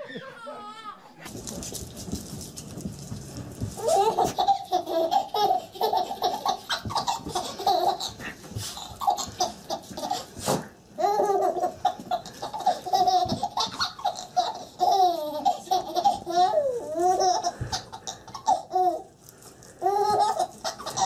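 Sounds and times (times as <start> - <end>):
baby laughing: 3.8 - 10.4, 11.0 - 19.2, 19.8 - 21.0.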